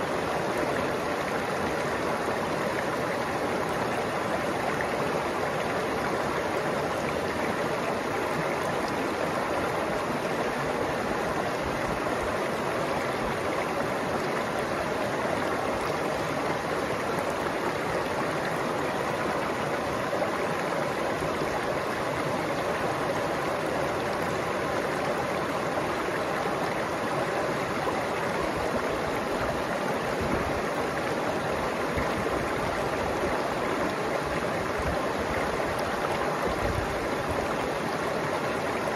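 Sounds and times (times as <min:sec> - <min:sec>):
stream running over rocks: 0:00.0 - 0:38.9.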